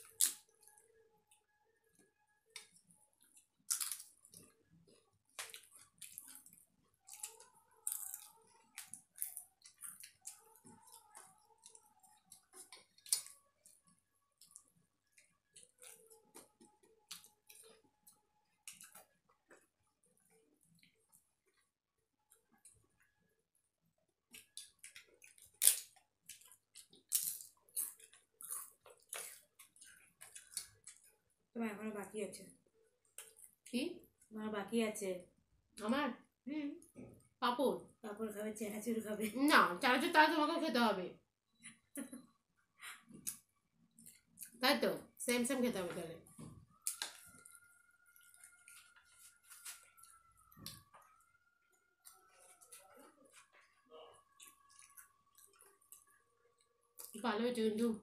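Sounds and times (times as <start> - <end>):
chewing: 1.9 - 23.1, 24.3 - 31.3, 46.3 - 57.2
crisp snack snapped and chewed: 3.6 - 4.4, 5.4 - 13.4, 24.4 - 29.5.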